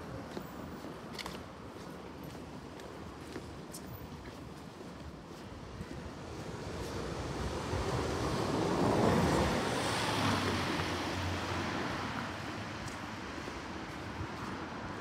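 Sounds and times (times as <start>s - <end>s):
car passing by: 6.2s - 15.0s.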